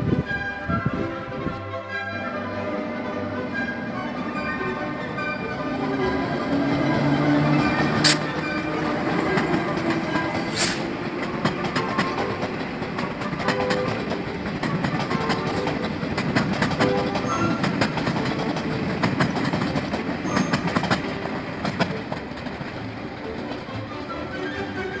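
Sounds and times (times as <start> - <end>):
train wheels clickety-clack: 5.7 - 25.0.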